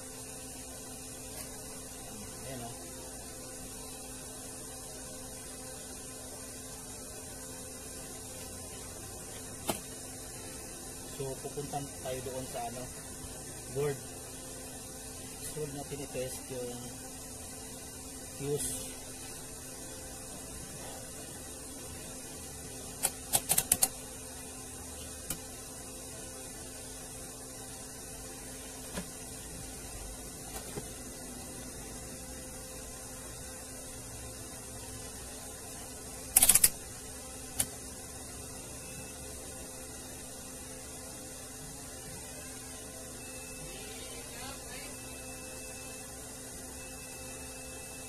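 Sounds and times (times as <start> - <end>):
steady low hum: 0.0 - 48.0
test probes clicking and tapping: 23.0 - 24.0.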